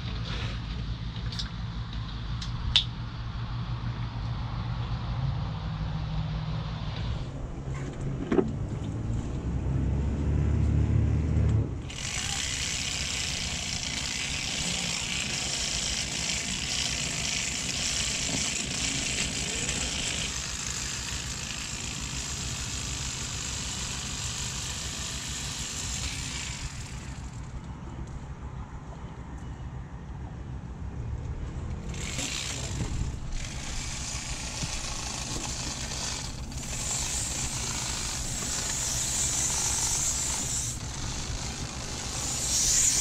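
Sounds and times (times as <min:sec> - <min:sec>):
sharp click: 0:02.4 - 0:03.0
boat motor humming: 0:31.8 - 0:43.0.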